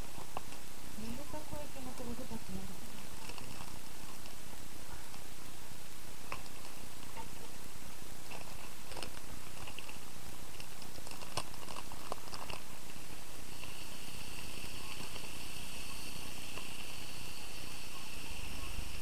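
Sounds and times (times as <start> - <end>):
cat purring: 8.2 - 19.0.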